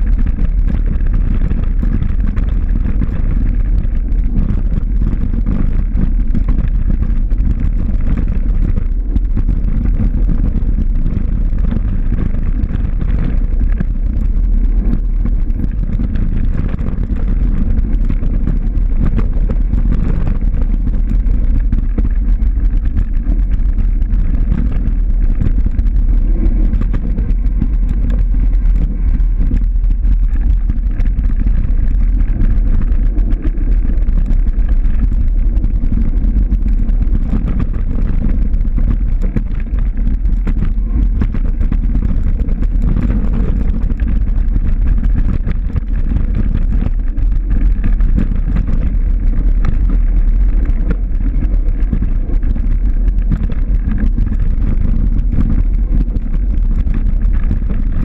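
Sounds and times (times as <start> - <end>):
faint clicks and rattles: 0.0 - 58.0
wind buffeting microphone: 0.0 - 58.0.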